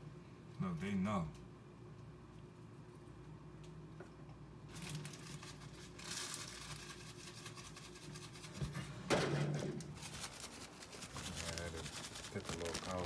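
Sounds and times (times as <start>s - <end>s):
scratchy rustling and rubbing: 4.9s - 8.9s, 9.9s - 13.0s.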